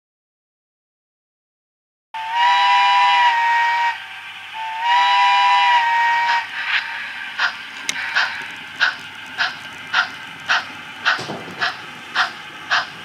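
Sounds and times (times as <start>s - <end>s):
chime steam whistle blasts: 2.2s - 7.2s
steam locomotive exhaust chuffs: 2.2s - 13.0s.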